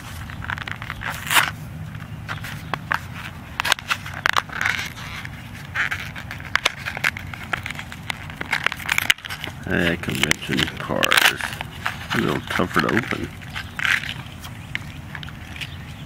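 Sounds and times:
plastic packaging being pried open: 3.6s - 15.8s.

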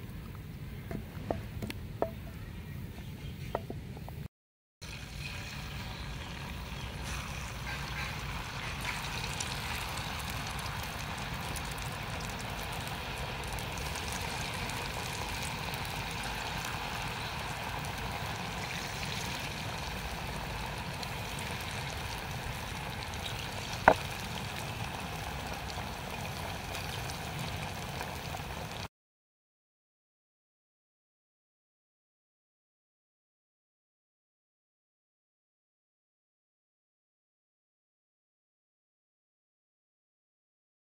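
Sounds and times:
deep-frying sizzle and bubbling: 4.8s - 28.9s.

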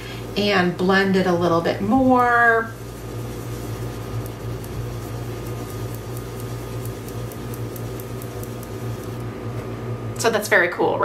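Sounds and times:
electrical hum: 0.0s - 11.0s
brush scratching on paper: 1.7s - 9.2s.

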